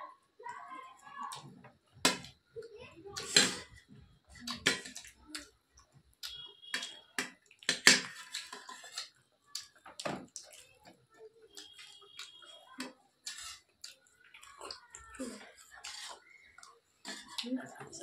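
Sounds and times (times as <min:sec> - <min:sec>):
wet chewing clicks and smacks: 0:04.4 - 0:17.7.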